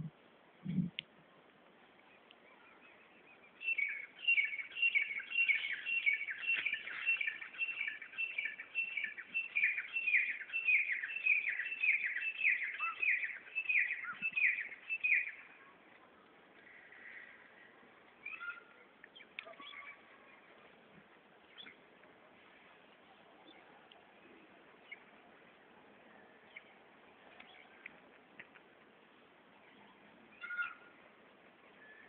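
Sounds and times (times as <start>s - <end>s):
bird chirping: 2.0s - 15.7s, 18.2s - 20.4s, 21.4s - 21.8s.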